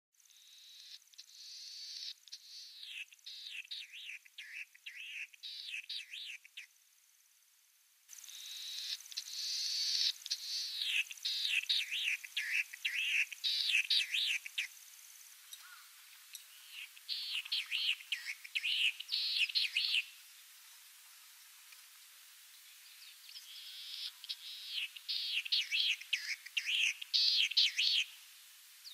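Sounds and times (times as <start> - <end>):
snipe singing downward notes: 0.6 - 6.7, 8.2 - 14.7, 16.3 - 20.1, 23.2 - 28.1.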